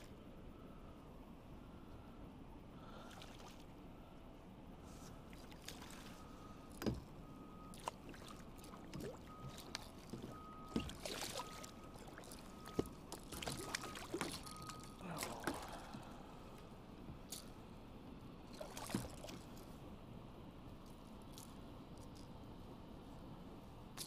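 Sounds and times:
fish splashing at water surface: 7.7 - 16.0.

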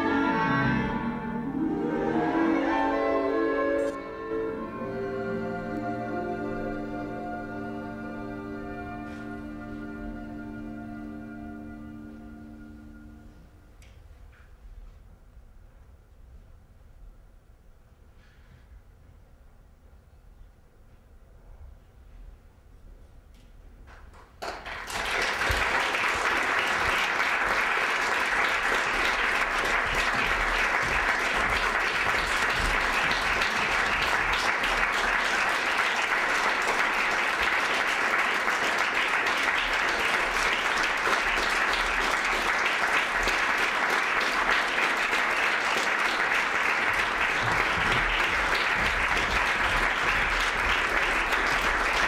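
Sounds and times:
audience applauding: 24.4 - 52.0.

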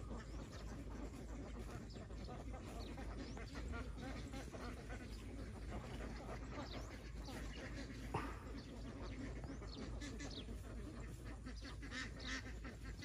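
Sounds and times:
flock of ducks quacking: 0.0 - 13.0.

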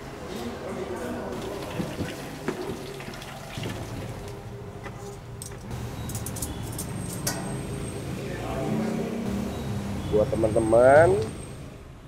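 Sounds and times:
hot oil bubbling and crackling: 1.4 - 4.4.

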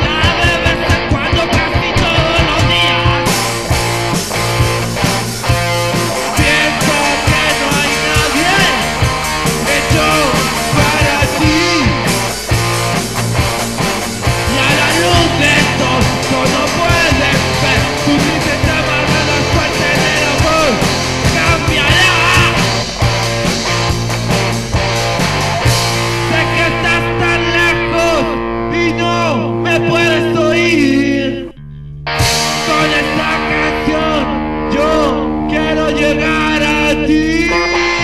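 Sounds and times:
steady drum beat: 0.0 - 28.0, 31.9 - 34.0
electric guitar: 0.0 - 38.0
rock band playing: 0.0 - 38.0.

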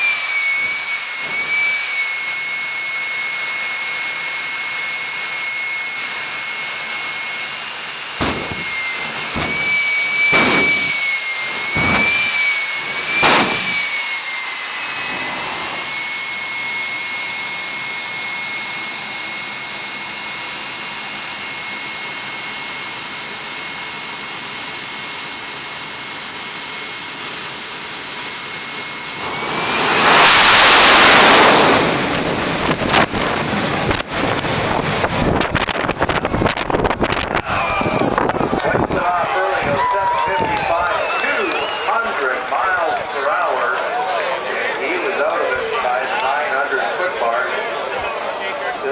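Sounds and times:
jet engine throttle blasts: 0.0 - 43.2
jet engine high whine: 0.0 - 48.9
wind buffeting on microphone: 30.8 - 39.0.

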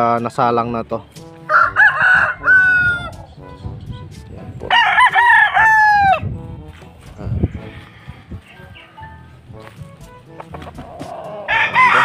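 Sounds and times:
roosters crowing: 1.4 - 3.3, 4.7 - 6.3, 10.4 - 12.0.

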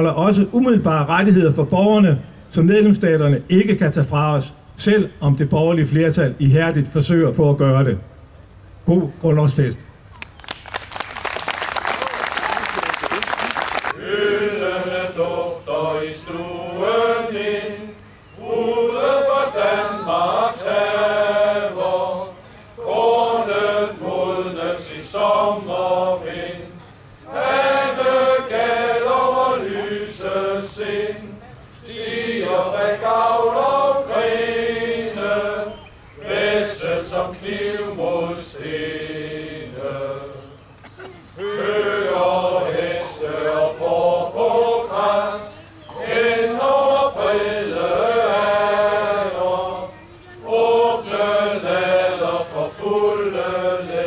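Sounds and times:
men's choir singing: 13.9 - 40.6, 41.3 - 54.0.

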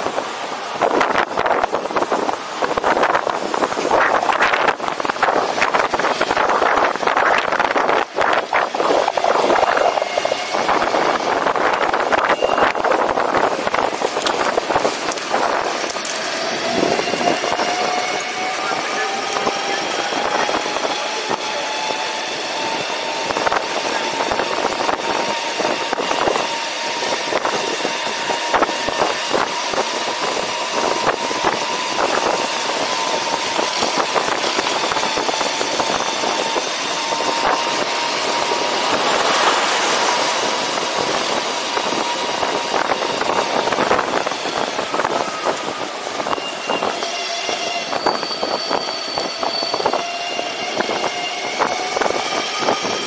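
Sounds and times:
wind and road noise: 0.0 - 53.0
electric vehicle motor whine: 0.2 - 53.0.

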